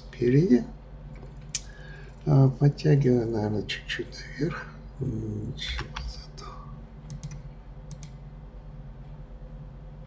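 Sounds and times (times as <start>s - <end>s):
low steady background hum: 0.0s - 10.0s
sharp click: 7.1s - 8.2s.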